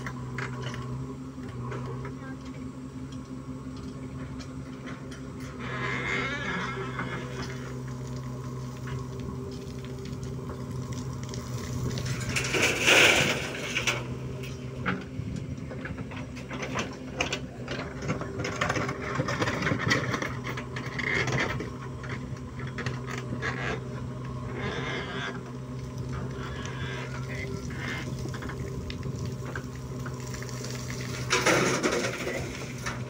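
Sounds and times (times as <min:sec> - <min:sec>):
diesel engine running under load: 0:00.0 - 0:33.0
digger bucket clattering on stones: 0:07.2 - 0:24.4, 0:26.0 - 0:33.0.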